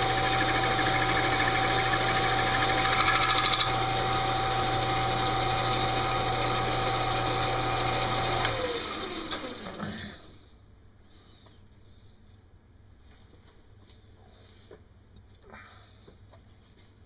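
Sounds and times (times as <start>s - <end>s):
metal lathe motor hum: 0.0s - 10.2s.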